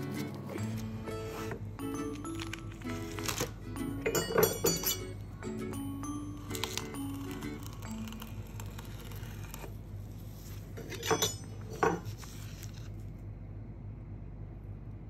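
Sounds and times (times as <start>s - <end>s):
low steady hum: 0.0s - 15.0s
dry seaweed sheets crackling: 2.2s - 3.6s, 6.4s - 10.8s.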